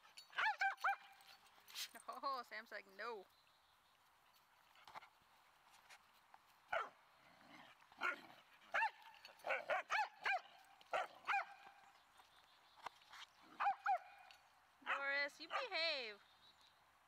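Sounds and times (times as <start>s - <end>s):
dog yipping: 0.4s - 1.1s, 8.0s - 11.6s, 13.6s - 14.1s.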